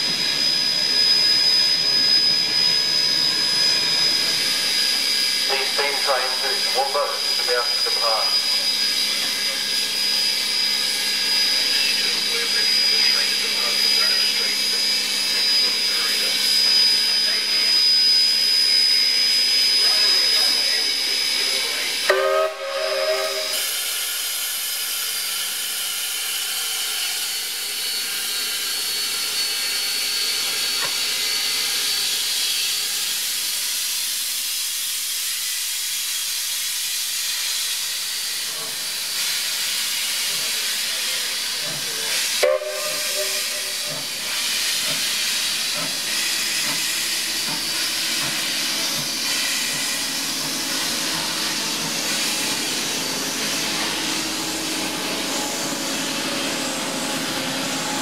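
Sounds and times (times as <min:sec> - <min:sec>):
steam hissing: 0:00.0 - 0:58.0
steam locomotive pulling away: 0:00.0 - 0:58.0
steam locomotive whistle blasts: 0:20.9 - 0:25.6, 0:42.1 - 0:50.0.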